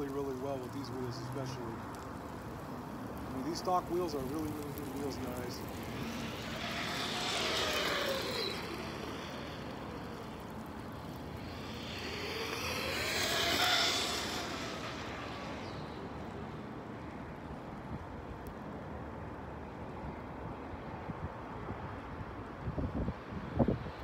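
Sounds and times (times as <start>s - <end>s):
toy truck electric motor whining: 4.8s - 16.1s.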